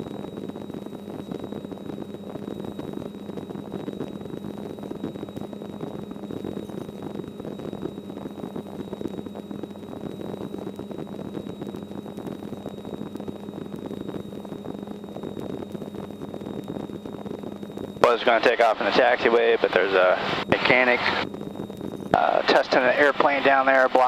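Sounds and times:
helicopter engine and rotor: 0:12.7 - 0:24.0.

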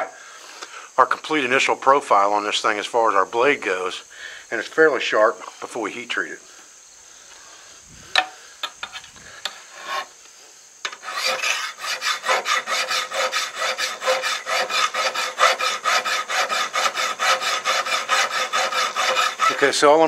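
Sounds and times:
file rasping on steel: 0:10.9 - 0:20.0.

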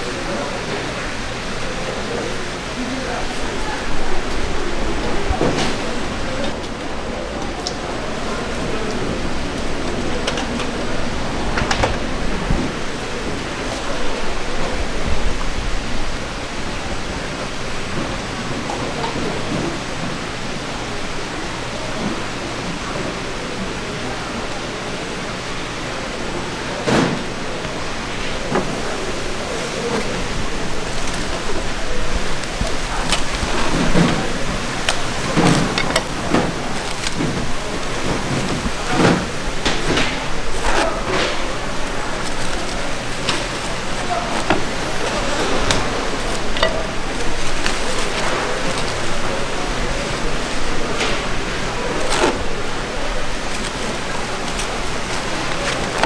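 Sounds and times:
steady hiss: 0:00.0 - 0:56.0
plastic cling wrap crinkling: 0:27.3 - 0:56.0.

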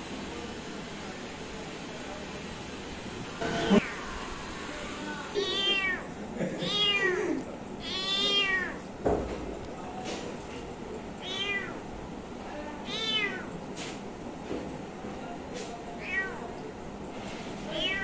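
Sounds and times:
kitten meowing: 0:05.4 - 0:06.0, 0:07.8 - 0:08.8, 0:11.2 - 0:11.8, 0:12.9 - 0:13.5, 0:16.0 - 0:16.4, 0:17.7 - 0:18.0.

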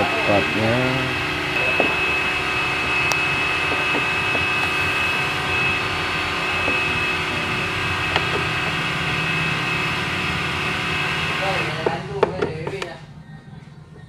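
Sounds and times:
machine drone with high whine: 0:00.0 - 0:14.0.

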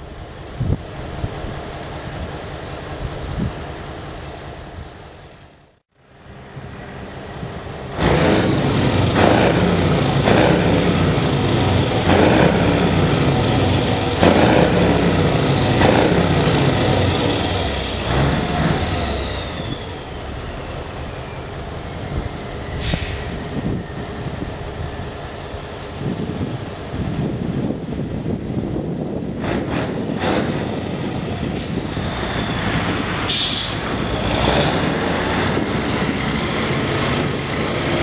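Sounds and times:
high engine whine: 0:05.1 - 0:38.0
truck diesel engine revving: 0:06.3 - 0:23.8, 0:29.4 - 0:38.0
sharp air hiss: 0:22.8 - 0:23.6, 0:33.1 - 0:34.0.

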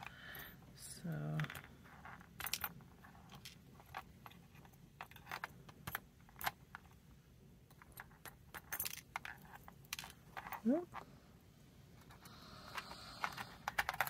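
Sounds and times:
metallic lock parts clicking: 0:12.7 - 0:14.0.

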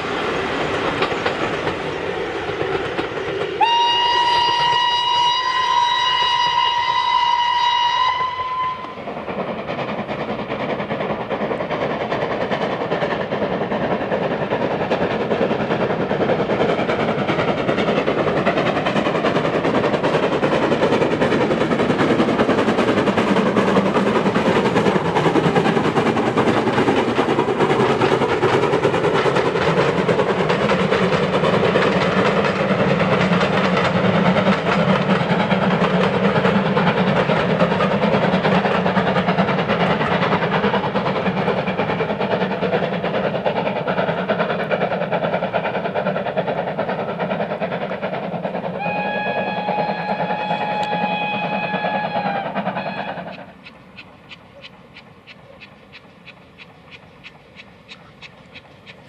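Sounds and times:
carriages rumbling on rails: 0:00.0 - 0:59.0
steam locomotive exhaust beating: 0:00.0 - 0:59.0.

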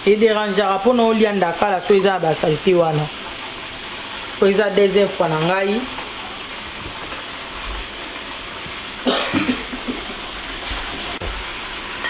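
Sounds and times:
fish being washed in water: 0:00.0 - 0:12.0
person coughing: 0:09.0 - 0:10.2.

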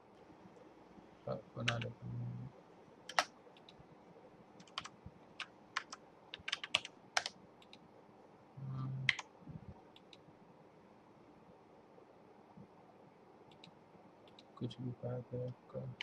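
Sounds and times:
keyboard key clicks: 0:03.1 - 0:03.8.

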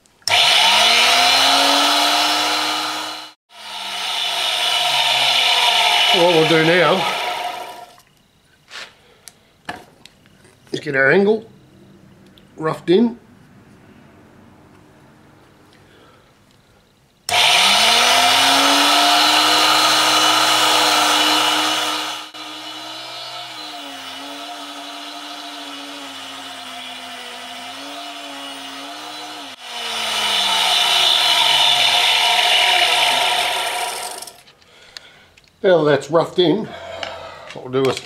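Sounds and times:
grinding wheel hissing on metal: 0:00.3 - 0:07.9, 0:17.3 - 0:34.4
grinder motor hum: 0:00.3 - 0:08.0, 0:17.3 - 0:34.4.

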